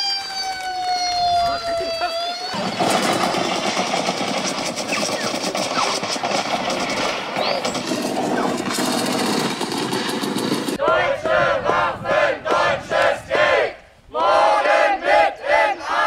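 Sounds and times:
crowd clatter: 2.6s - 11.8s
short rising whistles: 4.8s - 6.0s, 7.4s - 8.6s.

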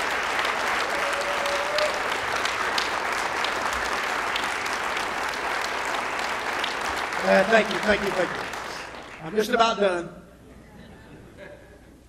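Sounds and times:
audience applauding: 0.0s - 9.6s.

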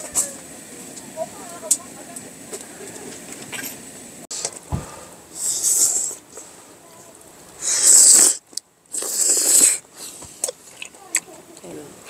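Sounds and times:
low thump: 4.7s - 5.0s
person slurping noodles: 7.6s - 10.2s.

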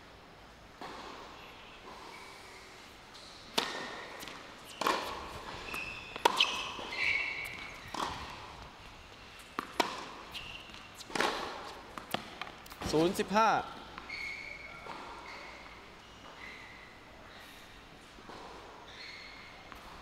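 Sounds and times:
tennis ball bouncing on hard court: 3.2s - 8.8s, 9.4s - 13.3s
racket hitting tennis ball: 3.5s - 13.1s.

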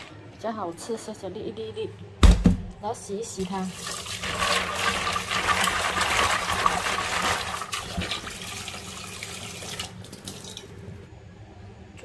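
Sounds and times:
tap water running into a pot: 3.4s - 10.8s.

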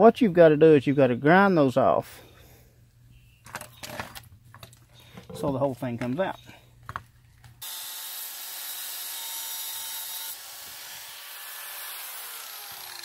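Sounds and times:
grinder cutting steel: 7.6s - 13.0s.

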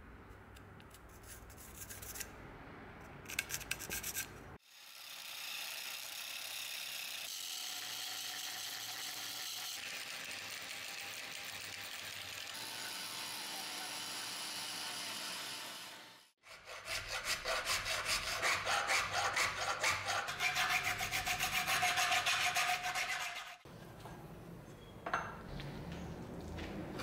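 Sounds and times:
hand file rasping on steel: 16.4s - 23.6s.

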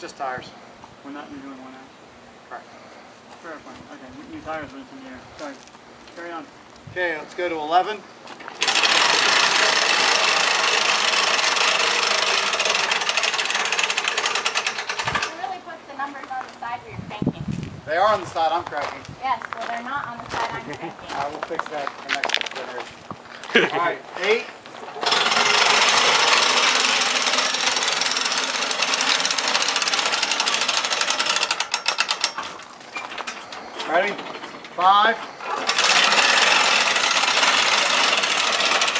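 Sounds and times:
hand-cranked winch clicking: 8.6s - 15.4s, 24.9s - 34.8s, 35.4s - 38.9s.

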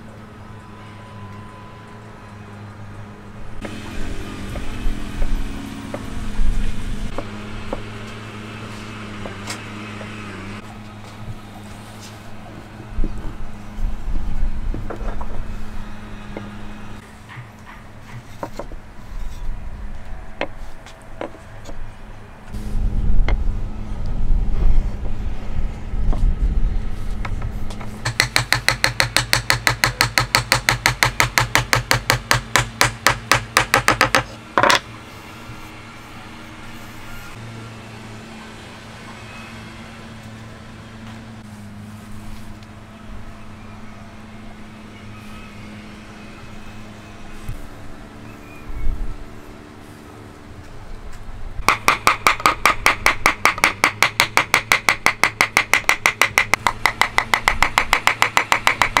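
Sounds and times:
low mechanical hum: 0.0s - 59.0s
hammer striking wood: 27.2s - 34.8s, 51.6s - 59.0s
wooden knocks and taps: 33.3s - 34.8s.

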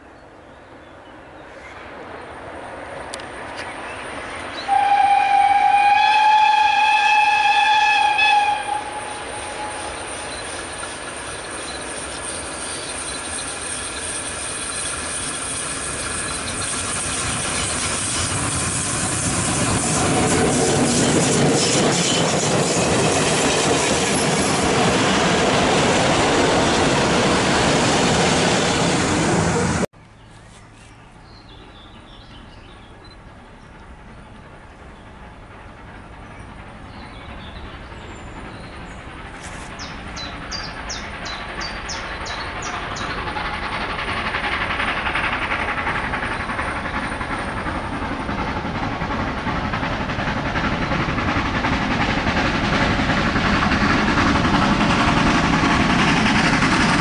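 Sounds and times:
steam train passing: 0.0s - 30.4s, 31.1s - 57.0s
steam whistle blast: 4.7s - 10.0s
coach wheels rattling and clicking: 8.6s - 29.9s, 32.2s - 57.0s.

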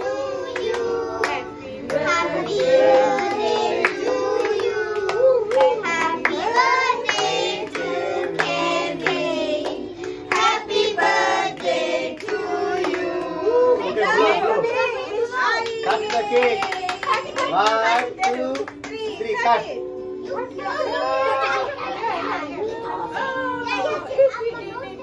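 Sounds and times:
children and adults singing: 0.0s - 14.7s
hand clapping: 15.6s - 19.0s.

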